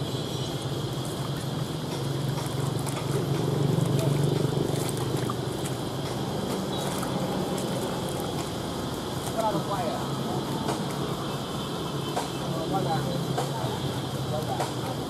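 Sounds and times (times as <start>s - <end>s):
water splashing in basin: 0.0s - 11.3s
low mechanical hum: 0.0s - 15.0s
people talking: 3.7s - 4.6s, 9.3s - 11.4s, 12.2s - 15.0s.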